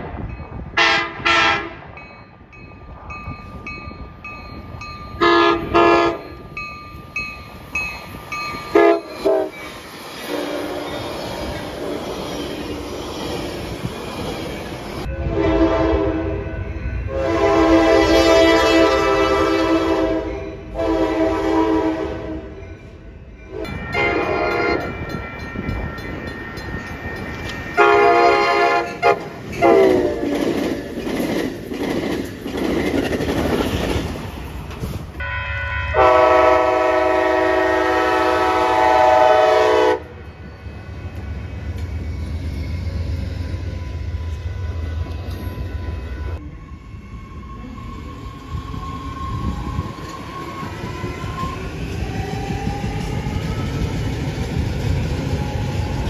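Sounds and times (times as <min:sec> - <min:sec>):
train rumbling past: 0:00.0 - 0:56.0
train horn blasts: 0:00.8 - 0:01.9, 0:05.2 - 0:06.4, 0:08.7 - 0:09.6, 0:10.3 - 0:11.0, 0:15.1 - 0:22.6, 0:23.5 - 0:25.0, 0:27.8 - 0:30.4, 0:35.2 - 0:40.2.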